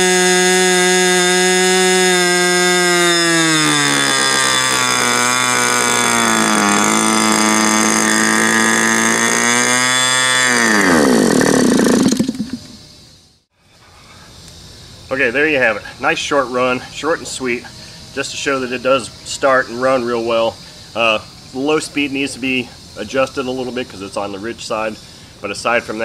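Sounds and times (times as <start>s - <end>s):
model glow engine running: 0.0s - 12.8s.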